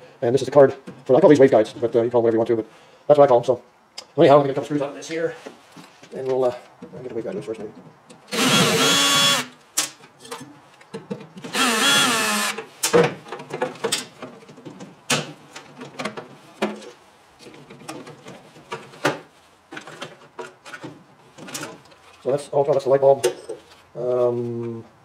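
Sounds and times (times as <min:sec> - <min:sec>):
cordless drill running: 0:08.3 - 0:09.5, 0:11.5 - 0:12.6.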